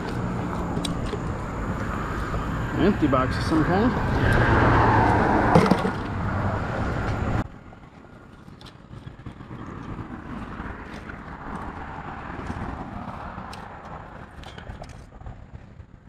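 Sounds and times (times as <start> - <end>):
road traffic passing: 0.0 - 16.0
rope clicking over concrete ledge: 7.8 - 16.0.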